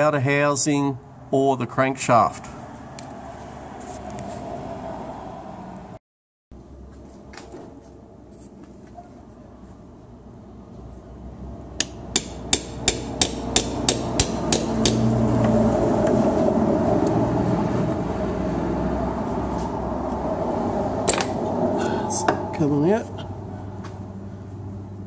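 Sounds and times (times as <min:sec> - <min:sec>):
hammer tapping steel pick: 0:11.8 - 0:15.1.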